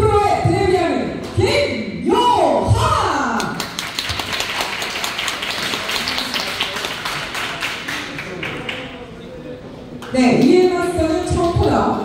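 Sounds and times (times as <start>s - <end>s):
audience applauding: 3.6s - 9.0s.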